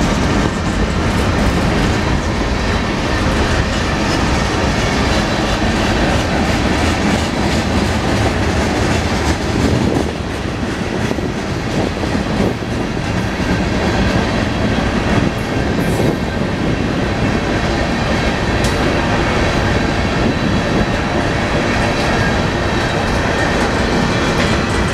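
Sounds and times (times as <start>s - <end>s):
freight train wheels rumbling: 0.0s - 24.9s.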